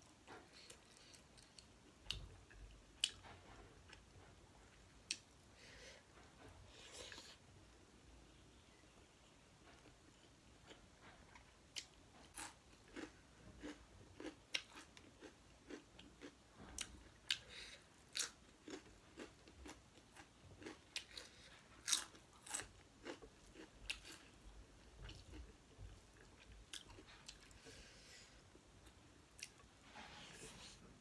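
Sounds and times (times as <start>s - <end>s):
person chewing crunchy food: 10.7s - 27.8s.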